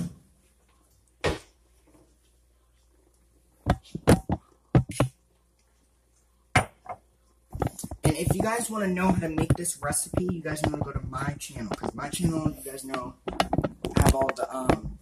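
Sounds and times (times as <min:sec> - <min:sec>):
knocks and clatters of handling: 0:06.6 - 0:15.0.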